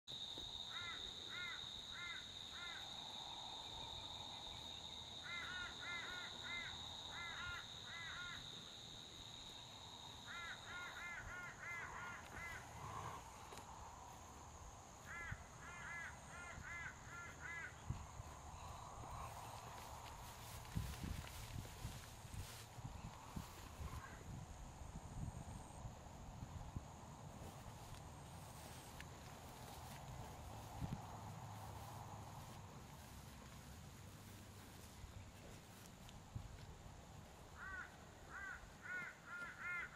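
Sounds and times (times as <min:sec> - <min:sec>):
crow cawing: 0:00.7 - 0:02.9, 0:05.2 - 0:08.5, 0:10.3 - 0:13.1, 0:15.0 - 0:17.8, 0:37.6 - 0:39.9.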